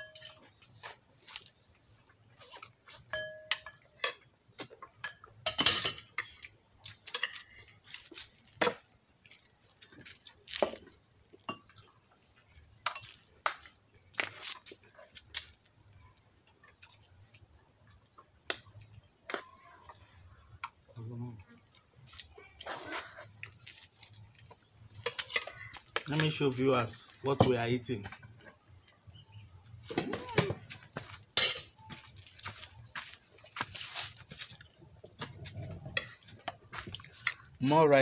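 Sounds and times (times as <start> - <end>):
spoons clinking on plates: 0.0 - 0.6, 2.9 - 7.8, 12.8 - 13.3, 31.3 - 32.0.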